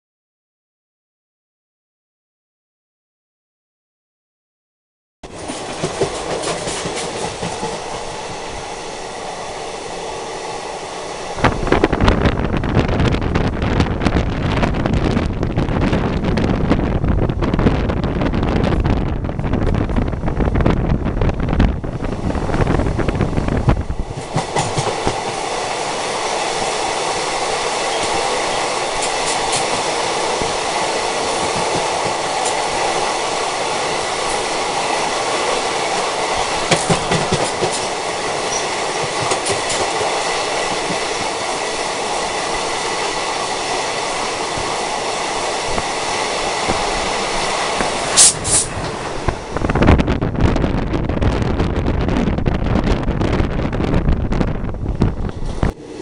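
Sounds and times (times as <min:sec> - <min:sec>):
rail joint clacks: 0:05.2 - 0:08.4, 0:22.5 - 0:25.8, 0:27.4 - 0:33.0, 0:34.2 - 0:41.5
passing train wheels rushing: 0:05.2 - 0:56.0
wind buffeting microphone: 0:05.3 - 0:56.0.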